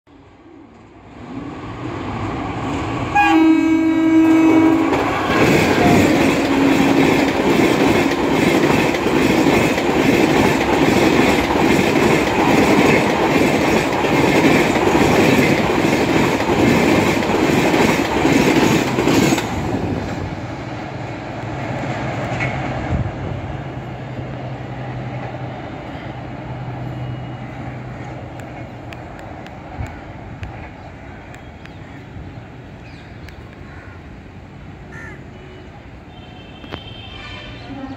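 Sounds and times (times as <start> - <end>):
train horn: 3.1 - 7.3, 35.3 - 37.9
train wheels clattering over rails: 4.5 - 20.4.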